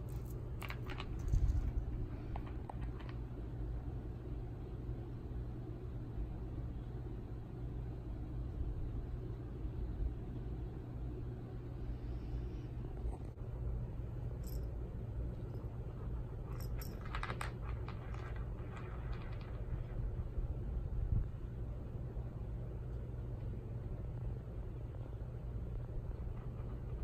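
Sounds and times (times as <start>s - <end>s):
low room hum: 0.0s - 27.0s
kitten scratching and rustling: 15.8s - 20.4s.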